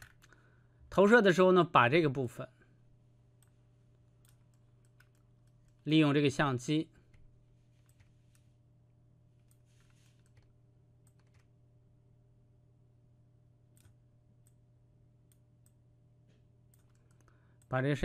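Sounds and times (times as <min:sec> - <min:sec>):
low steady hum: 0:00.0 - 0:18.0
computer mouse clicks: 0:04.2 - 0:05.8, 0:09.4 - 0:11.5, 0:13.7 - 0:14.6, 0:16.7 - 0:17.7.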